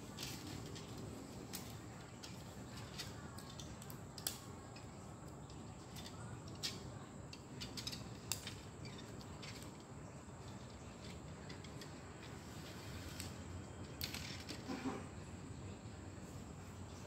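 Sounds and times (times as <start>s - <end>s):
low steady hiss: 0.0s - 17.0s.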